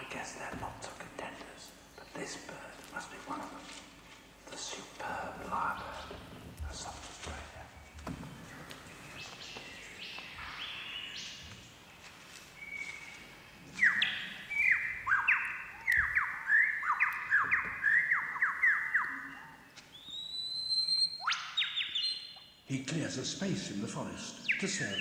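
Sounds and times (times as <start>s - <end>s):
lyrebird song over speakers: 0.0s - 25.0s.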